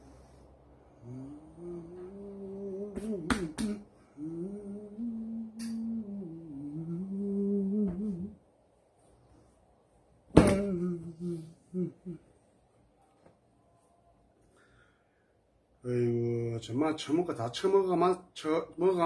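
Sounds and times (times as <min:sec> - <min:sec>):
man humming: 0:01.0 - 0:08.4, 0:10.4 - 0:12.2.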